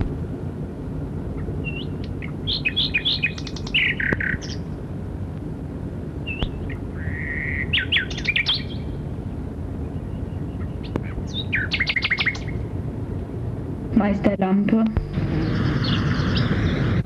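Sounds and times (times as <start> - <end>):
steady low hum: 0.0 - 17.0
nightingale singing: 1.4 - 4.7, 6.2 - 9.0, 9.8 - 12.7, 15.2 - 17.0.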